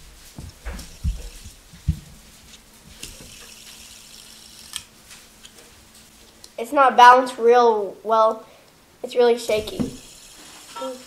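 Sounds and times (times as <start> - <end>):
fidget spinner humming: 0.3 - 6.7, 9.0 - 11.0
fidget spinner clicks: 3.0 - 5.6, 9.5 - 11.0.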